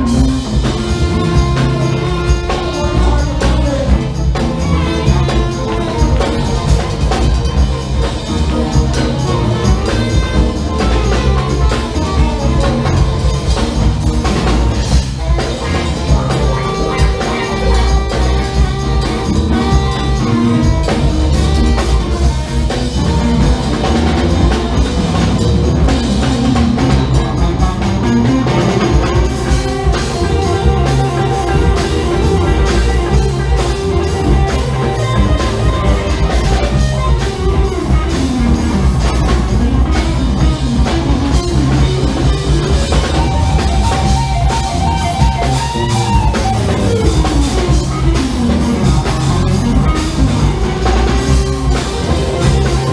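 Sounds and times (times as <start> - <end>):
funk band playing: 0.0 - 52.9.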